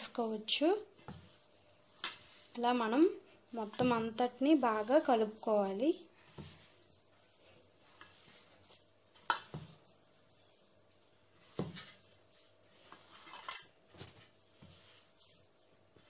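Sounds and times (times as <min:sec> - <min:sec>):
hand mixing crumbly dough: 0:00.0 - 0:16.0.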